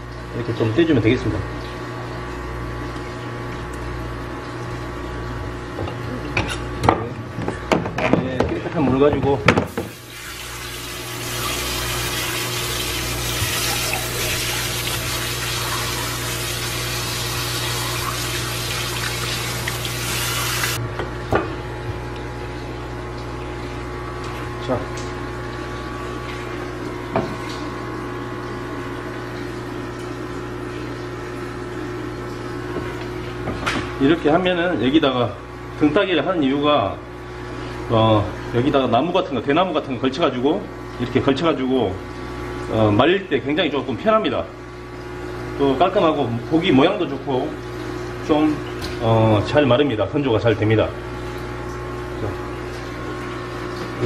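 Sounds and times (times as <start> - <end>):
machine hum: 9.7 - 20.9.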